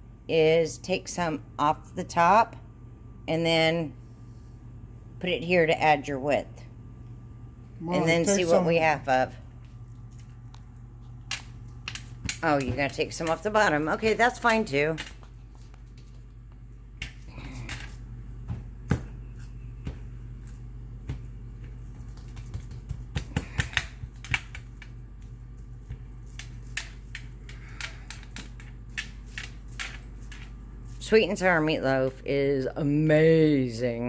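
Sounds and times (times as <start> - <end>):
low steady hum: 0.0 - 34.0
hands patting ground meat: 19.8 - 26.6.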